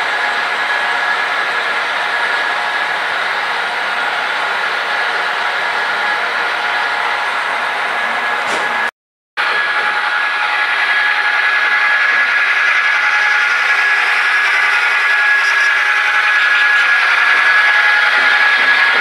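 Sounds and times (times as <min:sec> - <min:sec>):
model train motor whine: 0:09.4 - 0:19.0.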